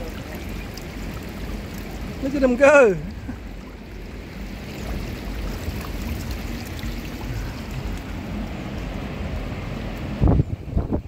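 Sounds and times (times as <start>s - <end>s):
water spilling into a gutter: 0.0s - 9.4s.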